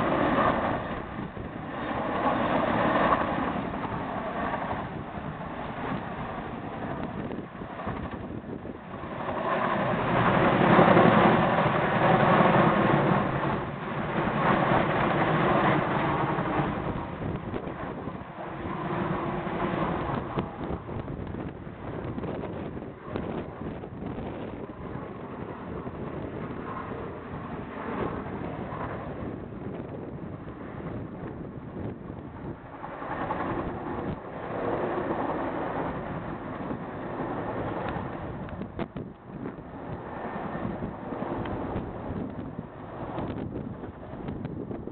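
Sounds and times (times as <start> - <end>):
helicopter flying overhead: 0.0 - 44.9
wind on microphone: 0.0 - 44.9.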